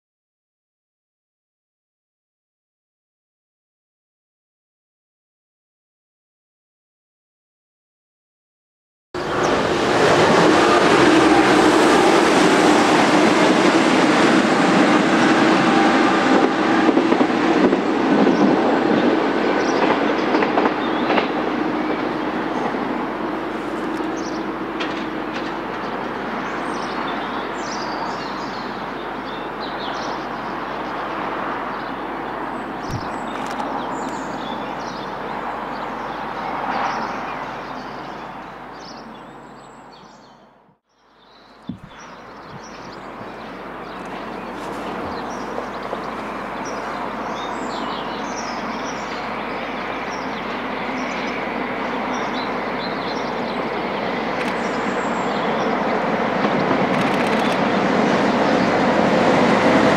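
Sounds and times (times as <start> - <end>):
train rumble: 9.2 - 39.5, 41.6 - 59.9
approaching train: 9.2 - 59.9
birds chirping: 18.3 - 58.8.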